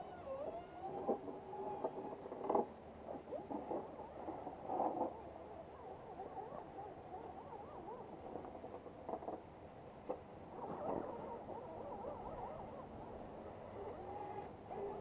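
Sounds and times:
electric motors whining: 0.0s - 2.6s, 13.5s - 15.0s.

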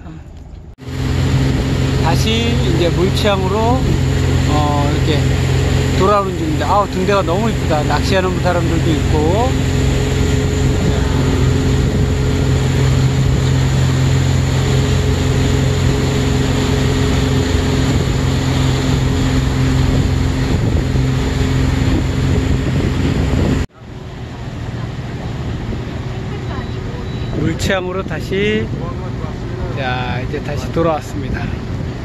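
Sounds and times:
wind on microphone: 0.0s - 23.7s
boat engine humming: 0.0s - 32.0s
wake rushing: 0.8s - 32.0s.

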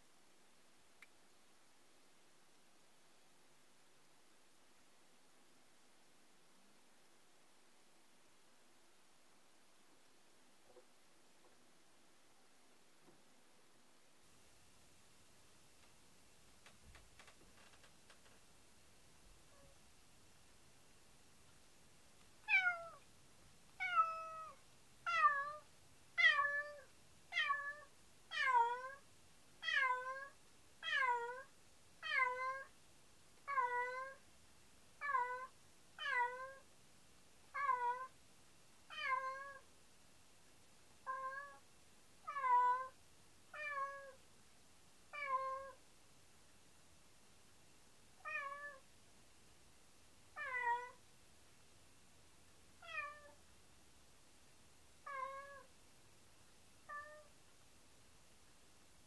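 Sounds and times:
cat meowing: 22.5s - 23.0s, 23.8s - 25.6s, 26.2s - 29.0s, 29.6s - 32.7s, 33.5s - 34.2s, 35.0s - 36.6s, 37.6s - 38.1s, 38.9s - 39.6s, 41.0s - 41.6s, 42.3s - 43.0s, 45.1s - 45.8s, 48.2s - 48.8s, 50.4s - 51.0s, 52.8s - 53.4s, 55.0s - 55.7s, 56.9s - 57.3s.

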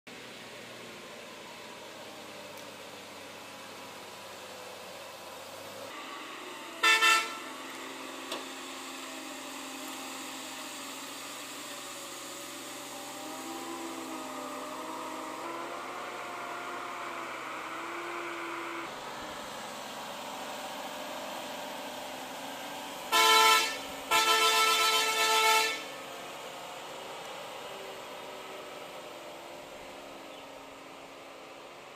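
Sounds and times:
lorry horn blasts: 6.8s - 7.6s, 23.1s - 26.0s.

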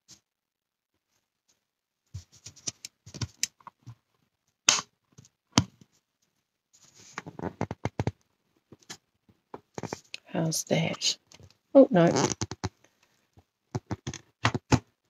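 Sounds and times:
rustling scrape: 6.8s - 7.4s.

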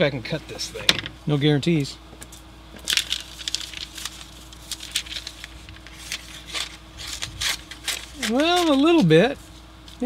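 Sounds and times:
paper crackling and tearing: 2.8s - 9.3s.

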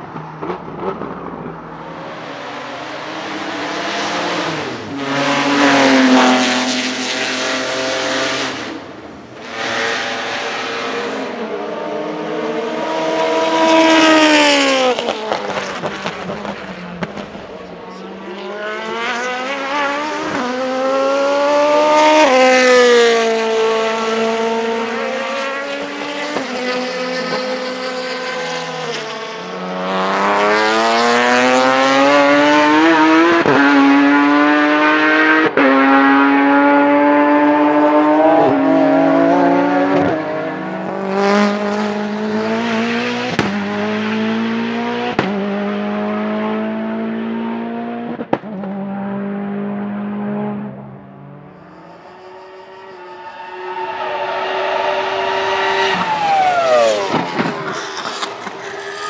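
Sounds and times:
racing car engine accelerating: 0.4s - 59.0s.

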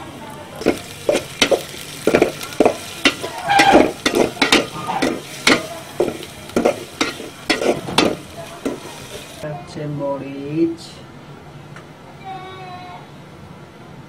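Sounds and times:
onions sizzling in hot oil: 0.0s - 9.4s
metal spatula scraping a pot: 0.6s - 9.3s.

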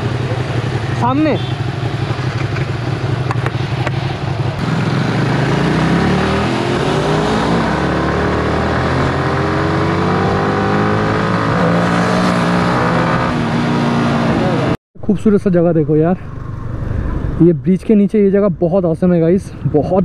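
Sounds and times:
motorcycle engine accelerating: 0.0s - 14.8s.

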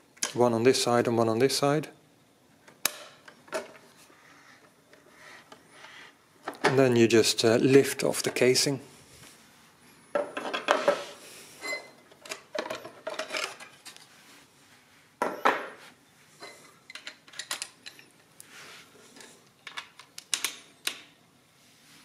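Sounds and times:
machine cases clattering: 12.1s - 14.0s
metal parts rattling: 12.2s - 14.0s, 16.9s - 18.1s.

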